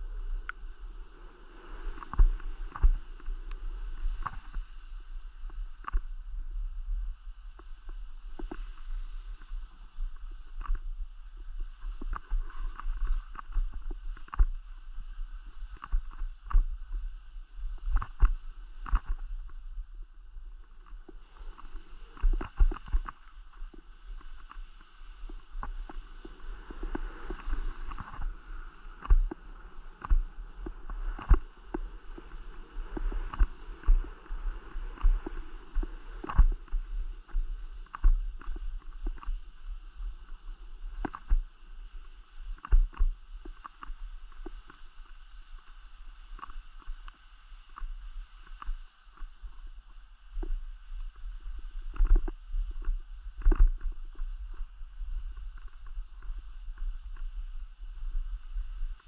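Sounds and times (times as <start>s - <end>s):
skis running over snow: 0.0s - 59.0s
wind rumble on microphone: 0.0s - 59.0s
ski knocks and scrapes: 20.9s - 39.4s.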